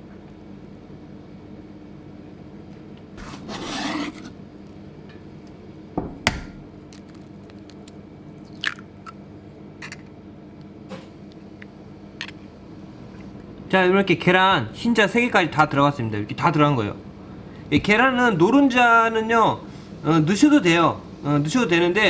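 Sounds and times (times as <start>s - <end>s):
low steady hum: 0.0s - 22.0s
knife scraping a cutting board: 3.2s - 4.4s
eggs cracking over a steel bowl: 6.3s - 9.2s.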